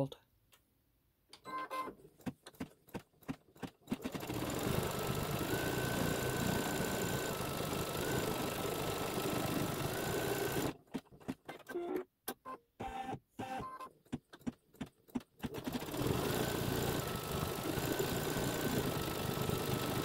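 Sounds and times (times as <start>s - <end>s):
embroidery machine stitching: 2.5s - 11.8s, 14.4s - 20.0s.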